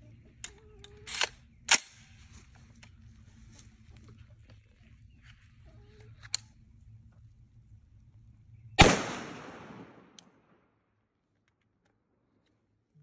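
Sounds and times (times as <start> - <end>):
rifle shot with echo: 8.8 - 10.6.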